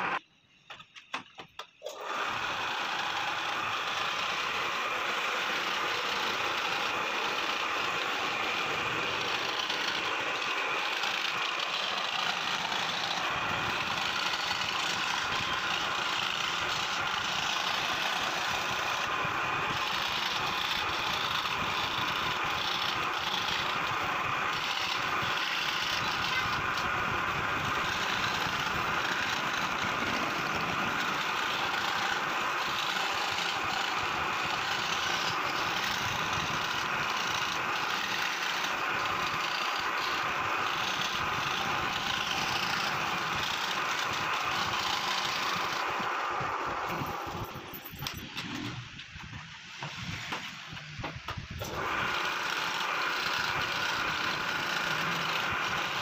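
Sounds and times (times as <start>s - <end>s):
scroll saw cutting wood: 0.0s - 56.0s.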